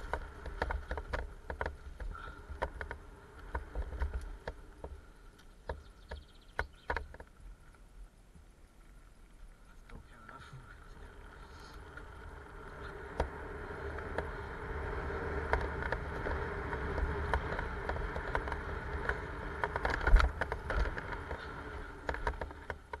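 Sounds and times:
bike knocks and rattles: 0.0s - 7.4s, 11.6s - 23.0s
low rumble: 7.4s - 23.0s
tyres crunching over gravel: 10.0s - 23.0s.

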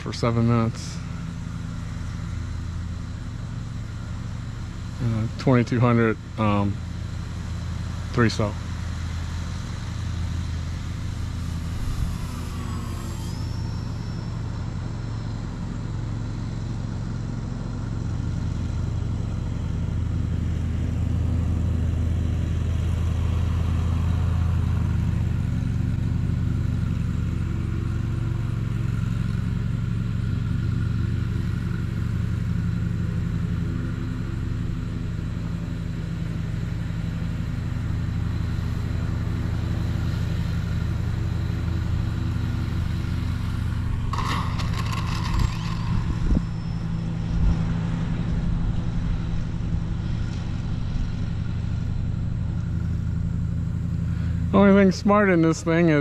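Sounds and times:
model plane motor drone: 0.0s - 56.0s
wind buffeting microphone: 45.3s - 46.6s.

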